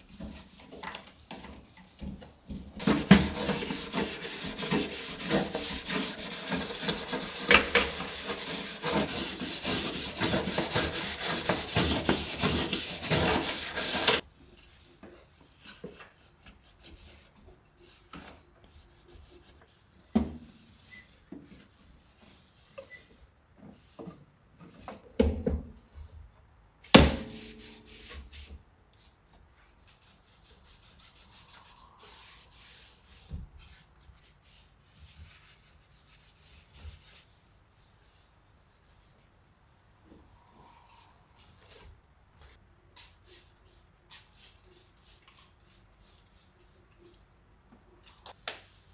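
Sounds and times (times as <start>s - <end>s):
brush scrubbing metal: 0.0s - 14.2s.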